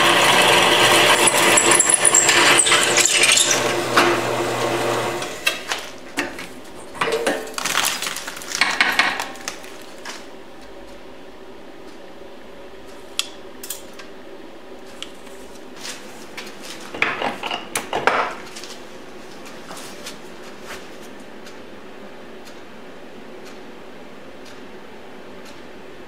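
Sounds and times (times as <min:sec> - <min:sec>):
drill press cutting metal: 0:00.0 - 0:05.6.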